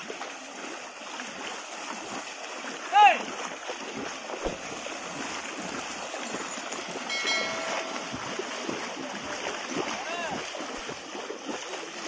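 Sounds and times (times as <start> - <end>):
water splashing and sloshing: 0.0 - 12.0
steady tone with overtones: 7.1 - 8.8.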